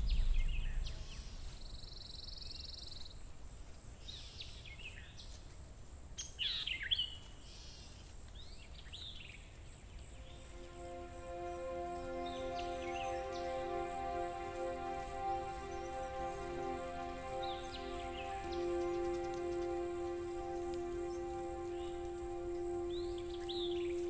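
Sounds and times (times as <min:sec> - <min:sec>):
low steady rumble: 0:00.0 - 0:01.9
songbirds chirping: 0:00.0 - 0:24.0.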